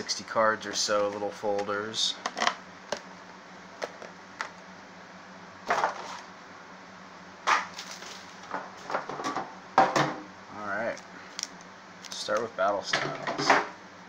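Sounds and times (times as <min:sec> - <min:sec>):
rustling scrapes: 0:05.7 - 0:06.3, 0:07.7 - 0:09.0.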